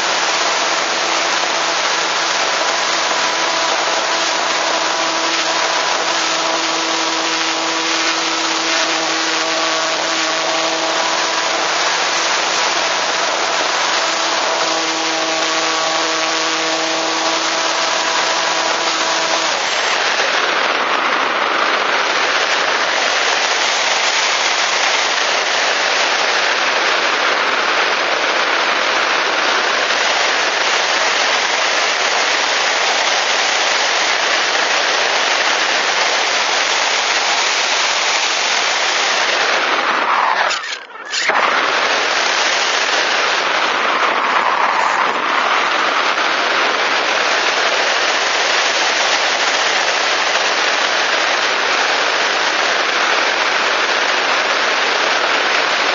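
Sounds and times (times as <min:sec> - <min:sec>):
electric motor humming: 0:00.0 - 0:27.4, 0:28.1 - 0:51.1
wind rushing over microphone: 0:41.2 - 0:50.9.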